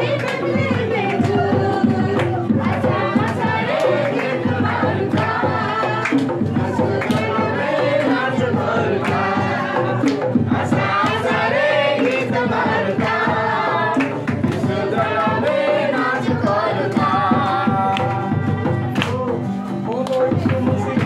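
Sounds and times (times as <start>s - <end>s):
hand claps: 0.0s - 8.3s, 9.0s - 9.4s, 10.0s - 10.3s, 11.0s - 16.2s, 17.8s - 21.0s
group singing a carol: 0.0s - 19.6s.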